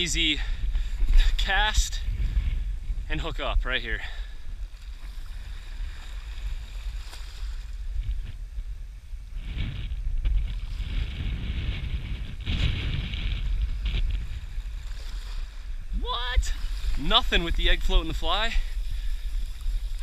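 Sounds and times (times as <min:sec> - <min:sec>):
waves washing at shoreline: 0:00.0 - 0:08.4, 0:10.4 - 0:20.0
wind buffeting microphone: 0:00.0 - 0:20.0.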